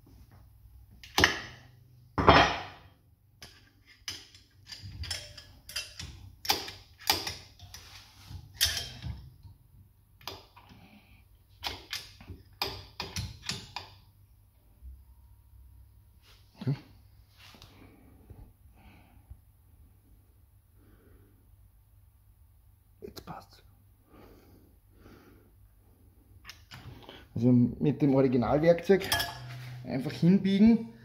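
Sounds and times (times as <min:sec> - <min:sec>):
metallic clicks and knocks: 0:03.4 - 0:09.4, 0:11.6 - 0:14.0.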